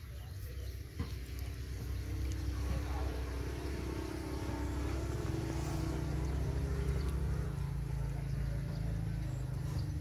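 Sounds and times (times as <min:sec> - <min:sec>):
low motor hum: 0:00.0 - 0:10.0.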